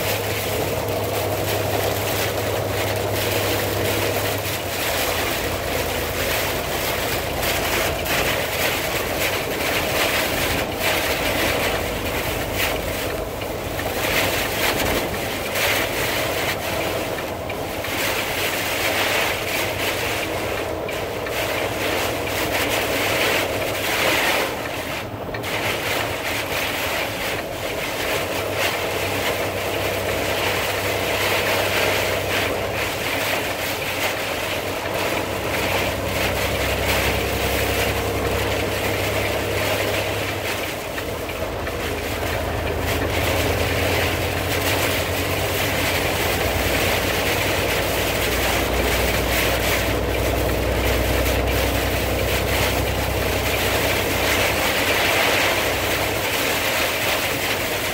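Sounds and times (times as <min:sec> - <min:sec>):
car engine and road noise: 0:00.0 - 0:57.9.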